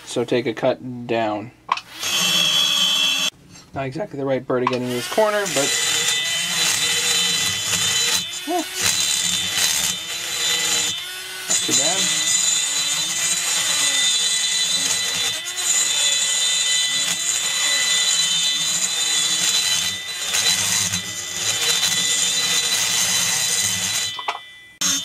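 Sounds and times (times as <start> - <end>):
rotary grinder whining: 1.9 - 3.3, 4.8 - 25.0.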